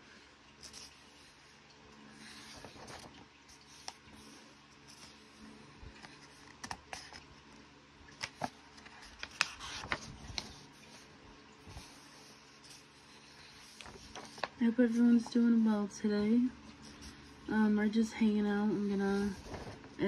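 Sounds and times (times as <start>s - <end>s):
paper pages rustling: 2.2s - 7.3s, 8.1s - 15.4s, 18.8s - 20.0s.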